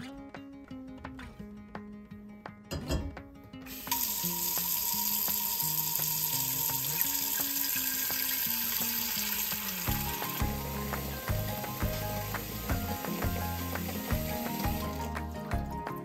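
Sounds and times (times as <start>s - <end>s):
tap water running into pot: 3.7s - 15.7s.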